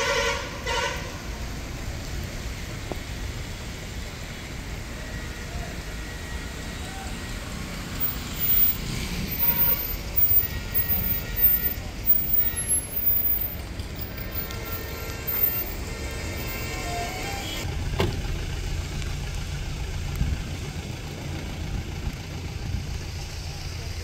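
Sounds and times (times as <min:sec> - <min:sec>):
car horn toot: 0:00.0 - 0:01.3, 0:09.3 - 0:17.6
traffic on a wet road: 0:00.0 - 0:24.0.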